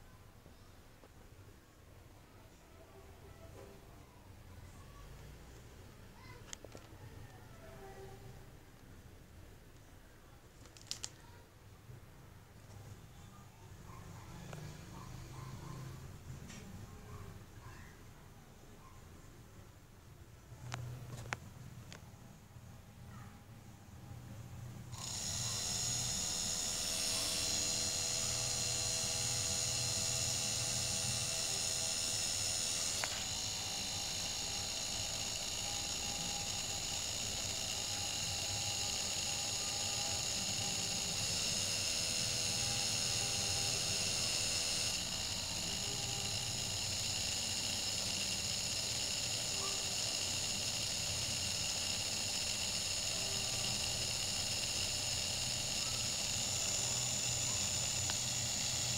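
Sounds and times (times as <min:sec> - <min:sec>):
electric motor whine: 0:25.0 - 0:58.9.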